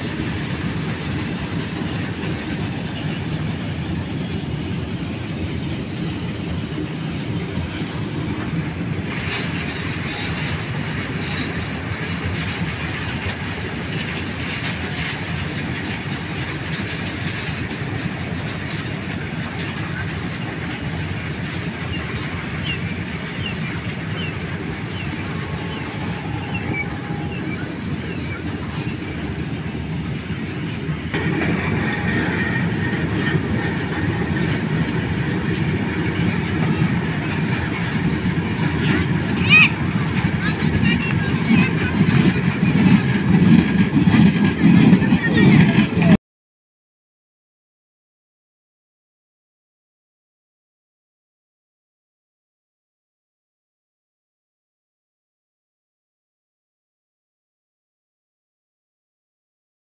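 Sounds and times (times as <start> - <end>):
freight train wheels rumbling: 0.0 - 46.2.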